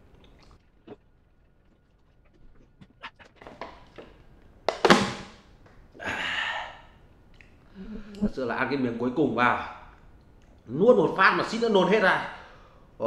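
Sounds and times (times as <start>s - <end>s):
mouth clicks of chewing: 0.0s - 4.1s, 7.3s - 8.3s
plastic bottle clattering on metal tray: 3.5s - 5.3s
breathy rush of air: 6.0s - 7.1s, 12.3s - 13.0s.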